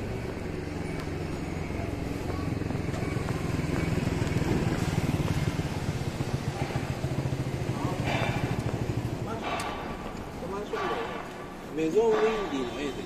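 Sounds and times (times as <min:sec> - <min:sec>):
vehicle engine running: 0:00.0 - 0:12.2.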